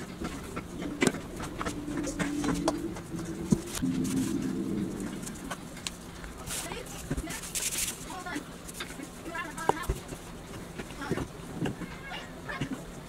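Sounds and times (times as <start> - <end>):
low wavering tone: 0.3 - 6.4.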